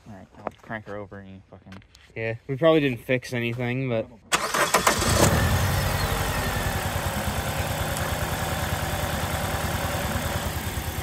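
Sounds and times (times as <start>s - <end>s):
car engine cranking: 4.3s - 11.0s
car engine idling: 4.4s - 11.0s.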